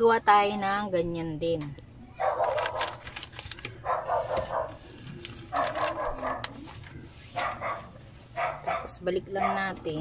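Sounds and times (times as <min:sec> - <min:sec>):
dog barking: 0:02.2 - 0:03.0, 0:03.8 - 0:04.8, 0:05.5 - 0:06.6, 0:07.4 - 0:09.8.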